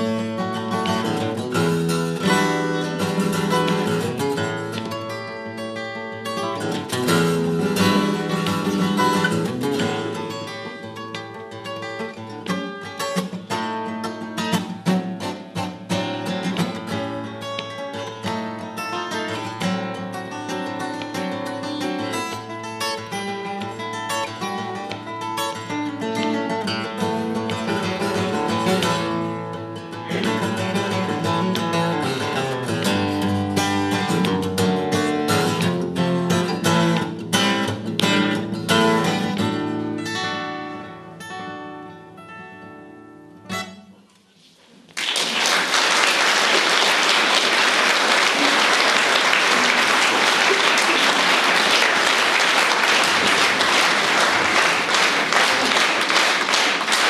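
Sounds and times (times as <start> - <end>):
strummed acoustic guitar: 0.0 - 44.6
audience applause: 44.9 - 57.0.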